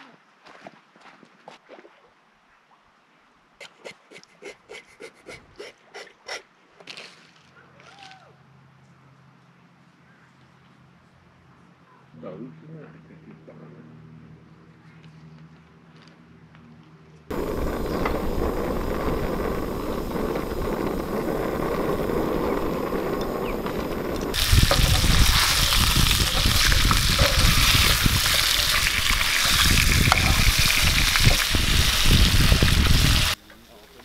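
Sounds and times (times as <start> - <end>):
low uneven rumble: 17.3 - 33.4
fish sizzling in a pan: 23.6 - 33.4.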